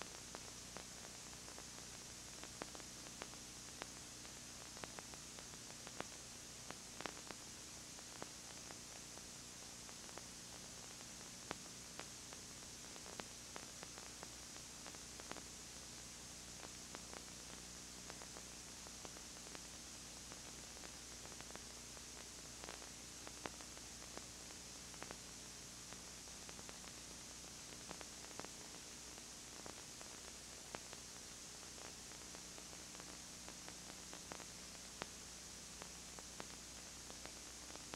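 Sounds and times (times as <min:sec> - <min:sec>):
low electrical hum: 0:00.0 - 0:37.9
tape hiss: 0:00.0 - 0:37.9.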